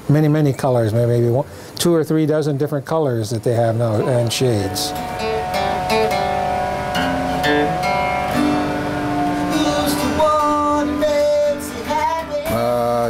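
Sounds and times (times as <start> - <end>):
strummed guitar music: 4.0 - 13.0.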